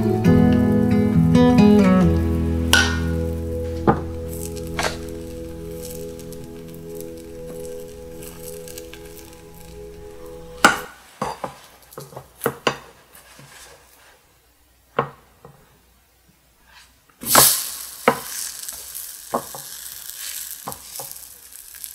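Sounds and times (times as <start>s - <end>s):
batter sizzling: 0.0s - 13.8s, 17.2s - 21.9s
spatula scraping a frying pan: 16.7s - 21.9s.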